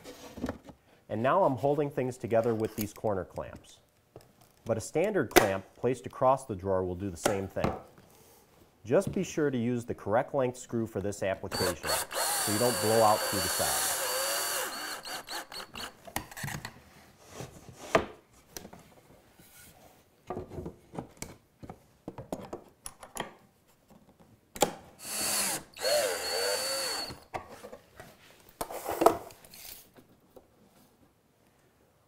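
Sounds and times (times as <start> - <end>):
cordless drill driving screw: 11.5 - 16.0, 25.0 - 27.2.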